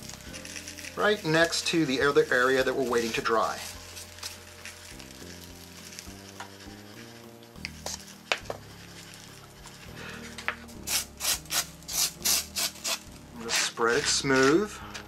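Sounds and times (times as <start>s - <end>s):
rock ballast pouring: 0.0s - 6.3s
fingertips scratching loose ballast: 0.0s - 15.0s
soft background music: 0.0s - 15.0s.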